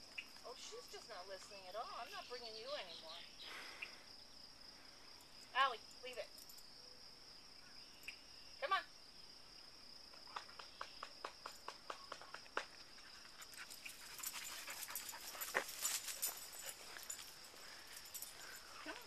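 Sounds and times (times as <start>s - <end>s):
crickets droning: 0.0s - 19.0s
dog sniffing the ground: 12.9s - 19.0s.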